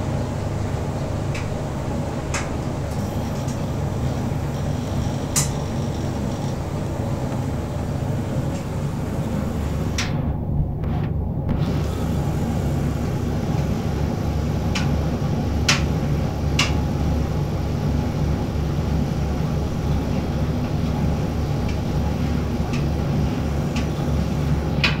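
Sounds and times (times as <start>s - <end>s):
tumble dryer humming: 0.0s - 25.0s.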